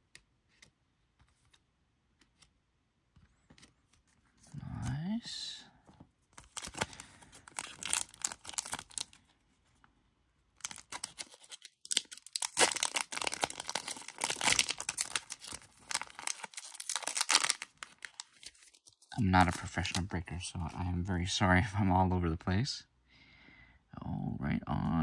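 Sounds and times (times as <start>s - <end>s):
plastic wrapper crackling: 6.4s - 9.3s, 10.6s - 20.1s.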